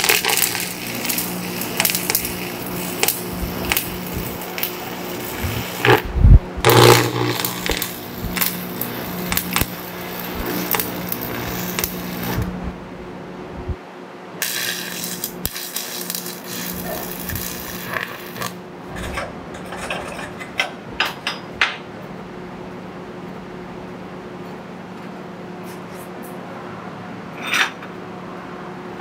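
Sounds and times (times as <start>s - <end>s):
welding arc crackling and hissing: 0.0s - 12.8s, 14.4s - 18.6s.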